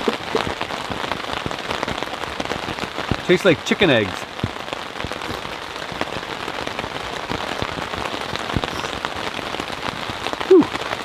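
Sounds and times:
rain pattering: 0.0 - 11.0
person making brief voiced sound: 10.5 - 10.7.

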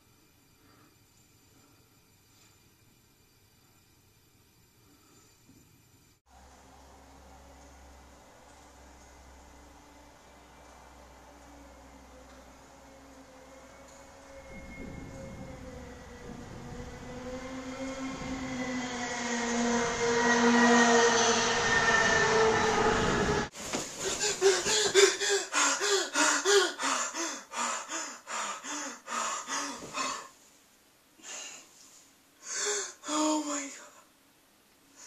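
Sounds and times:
train-like roar with ringing tones: 6.3 - 23.5
man panting and gasping: 24.0 - 30.3.

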